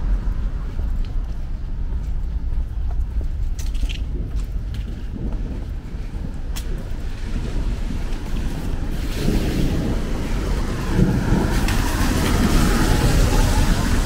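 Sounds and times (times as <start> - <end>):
low rumble: 0.0 - 14.0
tyres hissing on wet road: 7.0 - 14.0.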